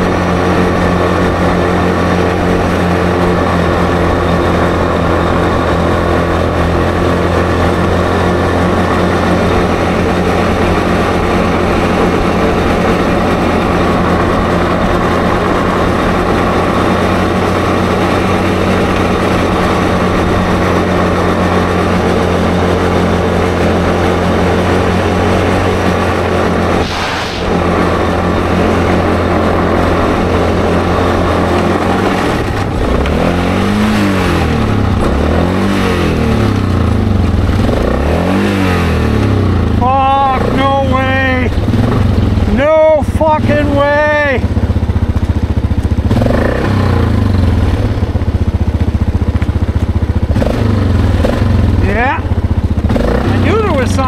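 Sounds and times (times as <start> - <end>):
atv engine droning: 0.0 - 54.0.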